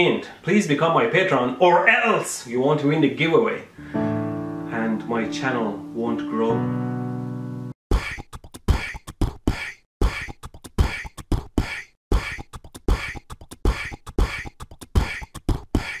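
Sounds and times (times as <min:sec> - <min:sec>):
percussion beat: 0:10.2 - 0:16.0.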